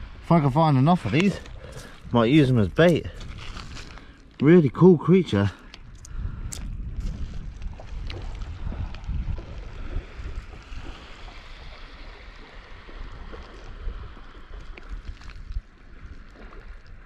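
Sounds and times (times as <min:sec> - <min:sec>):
wind rumbling on microphone: 0:00.0 - 0:17.0
sea water washing on shingle: 0:07.2 - 0:17.0.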